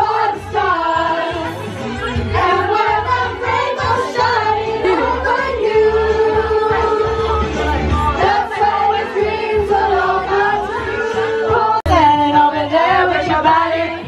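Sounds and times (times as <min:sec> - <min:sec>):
women singing karaoke: 0:00.0 - 0:14.0.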